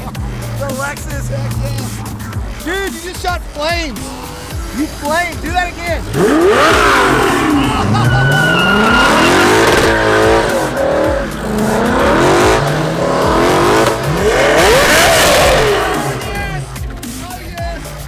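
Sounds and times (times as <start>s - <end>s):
car engine revving: 0.0s - 17.2s
tyres squealing on pavement: 4.9s - 10.3s.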